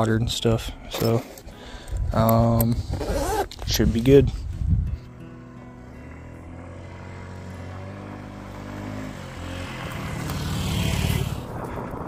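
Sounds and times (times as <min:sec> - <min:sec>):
scooter engine revving: 0:05.9 - 0:11.6.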